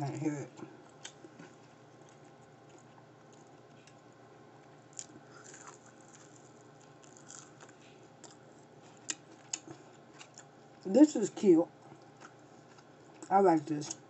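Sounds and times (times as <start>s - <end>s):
person biting and chewing: 4.9s - 10.5s.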